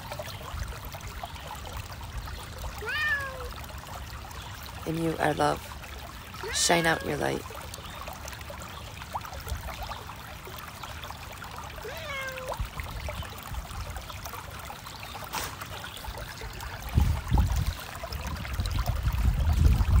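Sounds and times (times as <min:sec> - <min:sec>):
creek trickling over stones: 0:00.0 - 0:20.0
cat meowing: 0:02.8 - 0:03.5, 0:06.4 - 0:07.4, 0:11.8 - 0:12.6.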